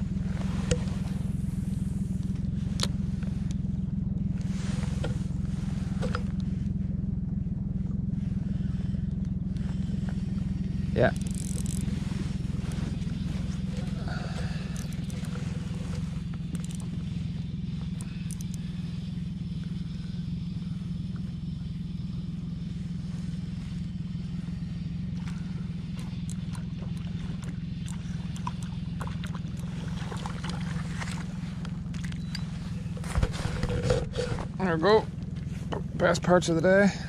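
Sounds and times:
boat motor humming: 0.0 - 37.0.

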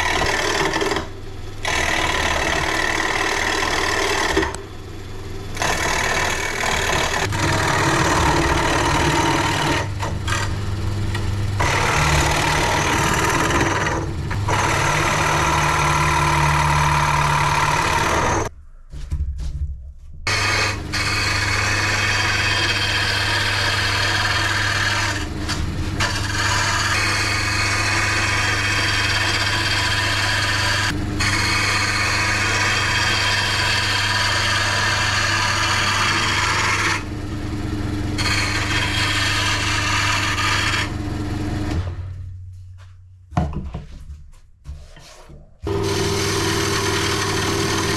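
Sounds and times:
turning tool cutting wood: 0.0 - 4.7, 5.5 - 18.5, 20.3 - 42.0, 45.6 - 47.9
lathe motor hum: 0.0 - 18.5, 20.3 - 42.1, 45.6 - 47.9.

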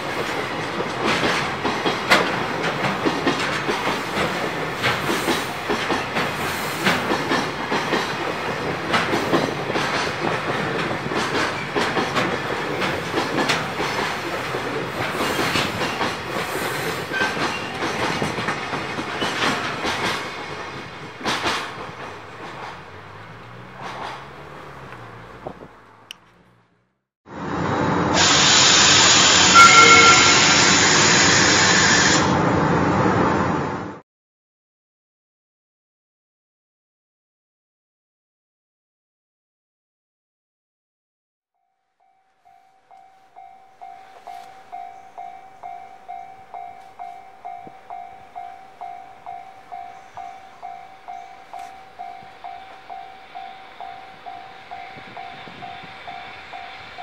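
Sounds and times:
train passing: 0.0 - 34.0, 42.0 - 57.0
loud hissing sound effect: 27.5 - 33.6
faint whistle-like tones: 29.4 - 30.6
level-crossing warning bell: 29.4 - 30.8, 41.6 - 57.0.

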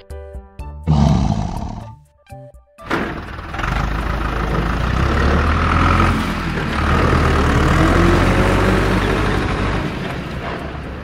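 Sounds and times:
heavy truck engine rumbling: 2.9 - 11.0.

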